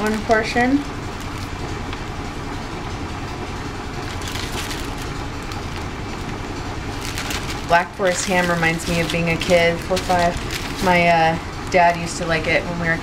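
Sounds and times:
washing machine rumbling: 0.0 - 13.0
plastic bags crinkling: 4.0 - 11.3.

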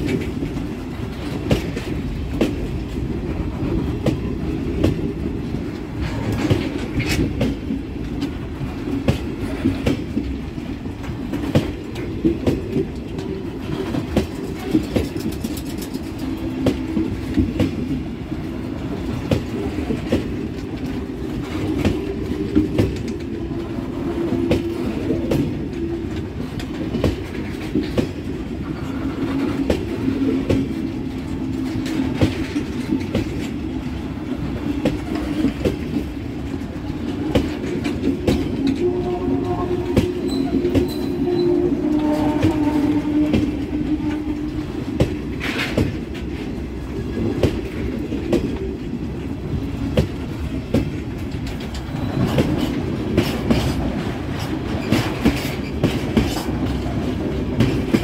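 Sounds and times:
train wheels clicking over rail joints: 0.0 - 58.0.

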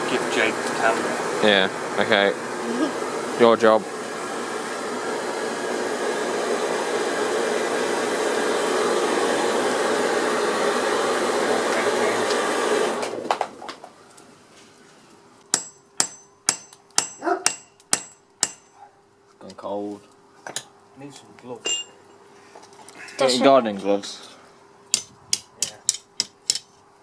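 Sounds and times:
blower air whooshing through forge: 0.0 - 13.3
hammer ringing on anvil: 15.5 - 18.8, 21.6 - 22.0, 25.0 - 26.6.

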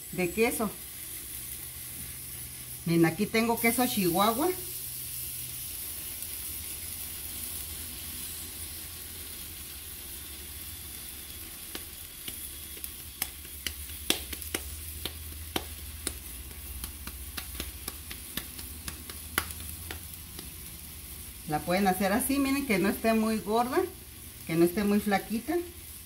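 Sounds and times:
food sizzling in a frying pan: 0.0 - 26.0
hands slapping dough: 11.8 - 20.6.

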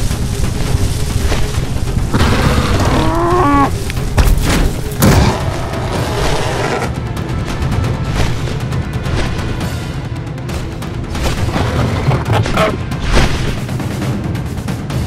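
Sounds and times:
heavy low rumble: 0.0 - 8.1
cow mooing: 2.1 - 3.8, 5.2 - 7.0.

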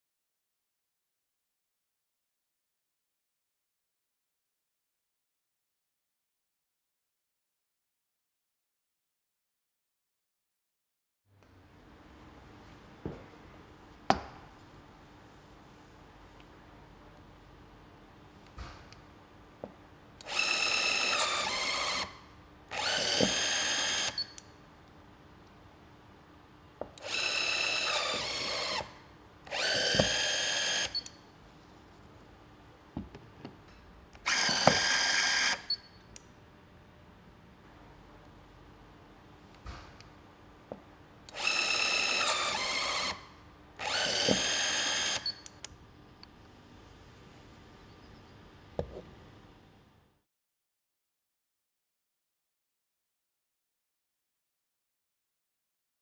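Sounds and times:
electric tool motor whining: 20.2 - 24.3, 27.0 - 31.1, 34.3 - 35.7, 41.3 - 45.3.

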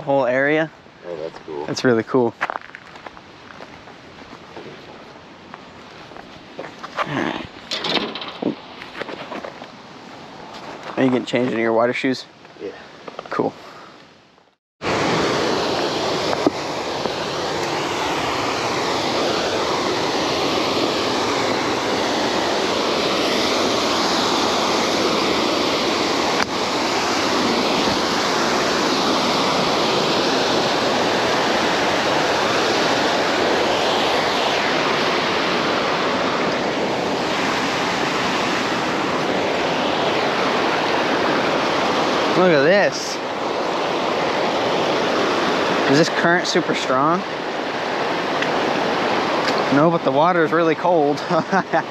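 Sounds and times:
fast-flowing water rushing: 14.8 - 51.9.

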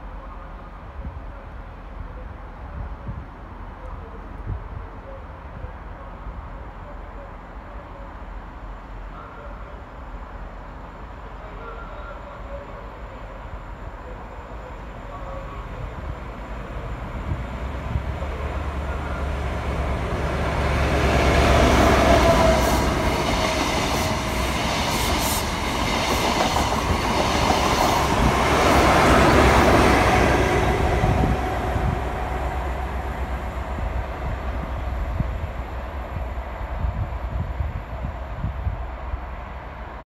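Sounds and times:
train passing: 7.6 - 40.0.

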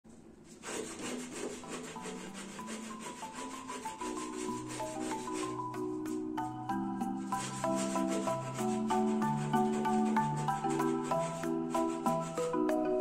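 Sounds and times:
sandpaper rubbing on plaster: 0.4 - 12.5
soft mallet melody: 3.7 - 13.0.

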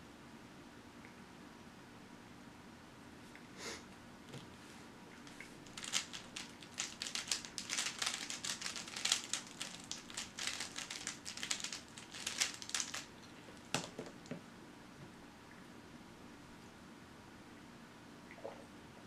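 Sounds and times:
puzzle cube clicking: 5.7 - 13.1.

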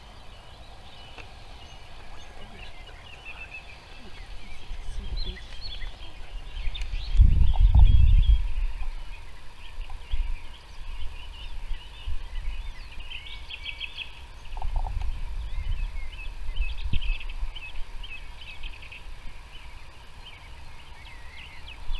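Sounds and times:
low uneven rumble: 0.0 - 21.9
songbirds chirping and trilling: 0.0 - 21.9.

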